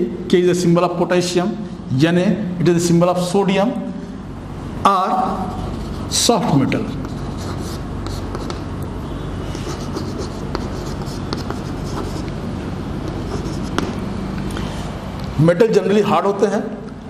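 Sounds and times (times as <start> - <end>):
steady low hum: 0.0 - 17.0
chalk scratching on blackboard: 5.5 - 8.7, 9.5 - 12.4, 13.1 - 14.0
chalk tapping: 6.9 - 8.7, 9.5 - 12.4, 13.0 - 14.0.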